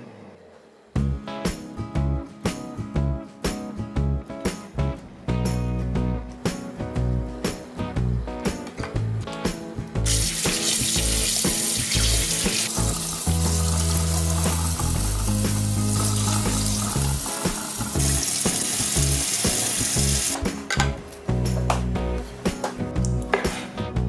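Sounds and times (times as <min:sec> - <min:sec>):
background music with bass line: 0:01.0 - 0:24.0
tap water running into a sink: 0:10.1 - 0:20.4.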